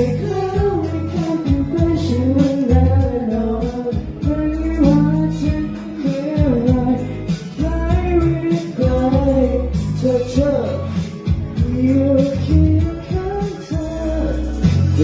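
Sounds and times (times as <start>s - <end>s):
backing track with bass: 0.0s - 15.0s
men singing into microphones: 0.0s - 15.0s.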